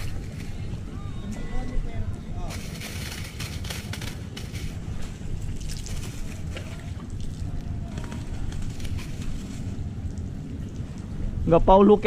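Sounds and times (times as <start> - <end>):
water lapping against wharf: 2.2 - 11.5.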